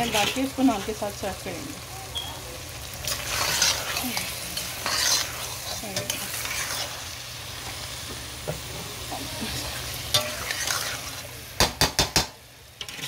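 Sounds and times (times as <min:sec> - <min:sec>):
spatula scraping a pan: 0:00.0 - 0:01.0, 0:03.0 - 0:07.8, 0:09.3 - 0:11.4, 0:12.8 - 0:13.0
okra sizzling in a pan: 0:00.0 - 0:13.0.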